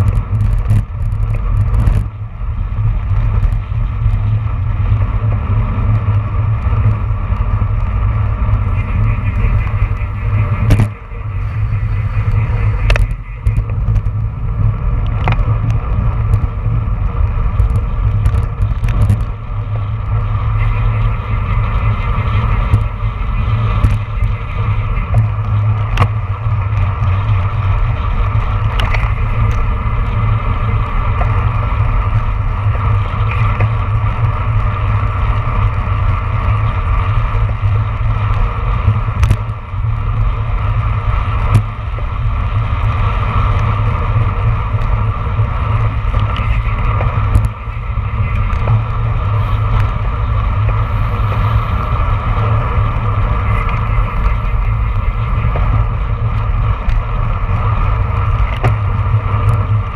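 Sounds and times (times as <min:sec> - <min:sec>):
tyre and road noise: 0:00.0 - 0:59.9
wind rushing over camera: 0:00.0 - 0:59.9
sharp clicks and knocks: 0:15.0 - 0:16.5, 0:28.7 - 0:29.6, 0:39.2 - 0:39.5, 0:58.4 - 0:59.7.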